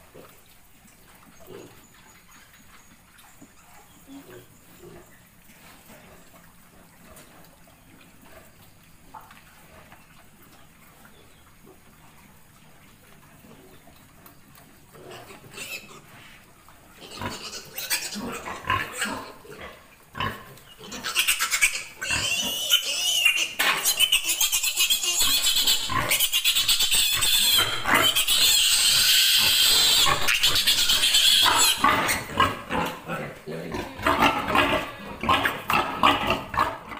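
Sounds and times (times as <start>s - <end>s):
piglets grunting: 17.0s - 36.9s
piglet squealing: 17.1s - 19.2s, 20.8s - 32.3s.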